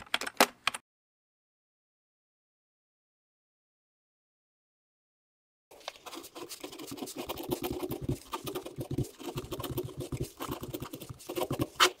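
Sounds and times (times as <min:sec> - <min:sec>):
ballpoint pen writing on paper: 0:06.0 - 0:12.0.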